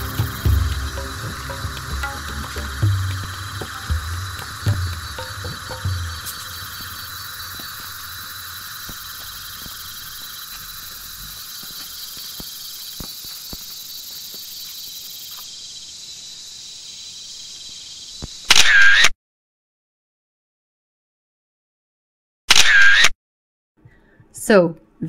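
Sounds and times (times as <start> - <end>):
insects buzzing and trilling: 0.0 - 19.0
faint ticks: 0.2 - 15.5.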